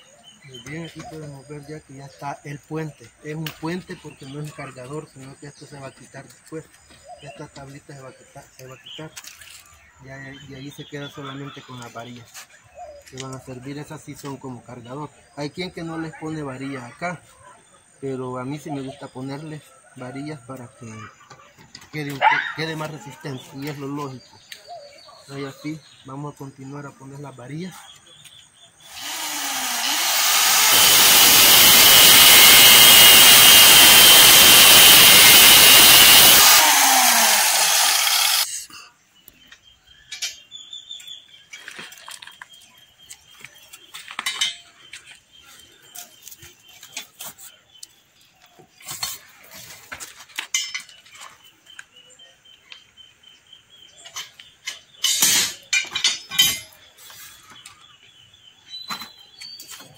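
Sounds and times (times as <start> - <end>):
angle grinder cutting steel: 28.9 - 38.6.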